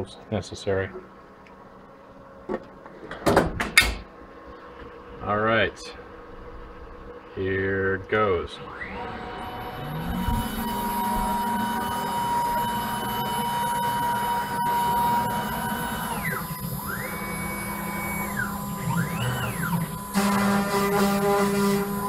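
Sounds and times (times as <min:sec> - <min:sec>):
stepper motors whining: 0:08.4 - 0:22.0
cnc router spindle whining: 0:08.5 - 0:22.0
loud rough machine noise: 0:08.6 - 0:22.0.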